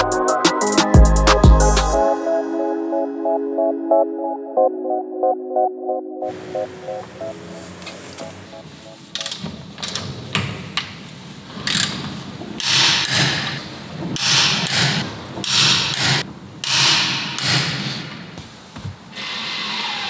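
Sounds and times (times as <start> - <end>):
knocks of wrench and nuts: 11.6 - 18.0.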